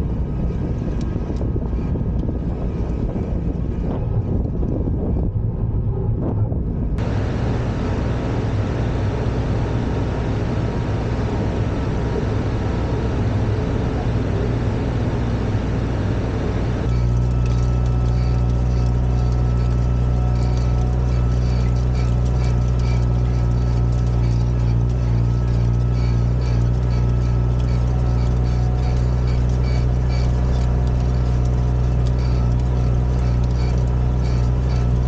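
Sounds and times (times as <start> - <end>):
tractor diesel engine running: 0.0 - 35.0
faint irregular clicking: 16.8 - 35.0.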